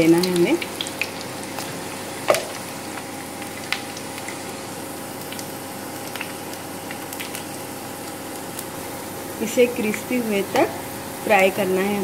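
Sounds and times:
oil popping and crackling: 0:00.0 - 0:08.8
batter frying in hot oil: 0:00.0 - 0:12.0.

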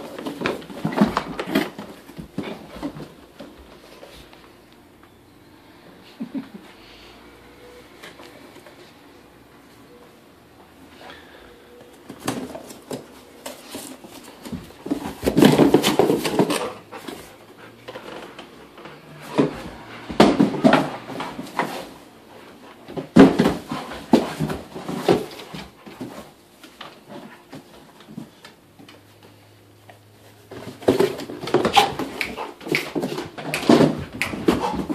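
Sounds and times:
dog knocking cardboard box about: 0:14.5 - 0:17.2, 0:22.9 - 0:26.3, 0:30.6 - 0:34.9.

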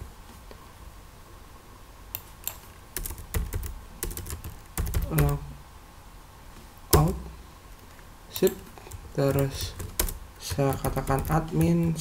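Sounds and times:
keyboard typing: 0:02.2 - 0:05.4, 0:08.3 - 0:12.0.

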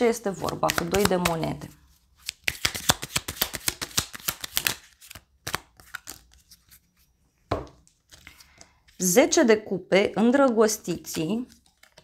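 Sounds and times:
cards being shuffled: 0:00.3 - 0:06.8, 0:07.8 - 0:09.0, 0:11.0 - 0:12.0.

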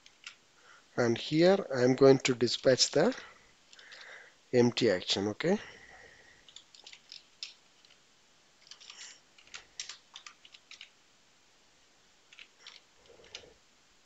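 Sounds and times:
faint keyboard typing: 0:00.0 - 0:00.4, 0:02.3 - 0:04.2, 0:05.9 - 0:08.0, 0:08.6 - 0:11.0, 0:12.2 - 0:13.6.

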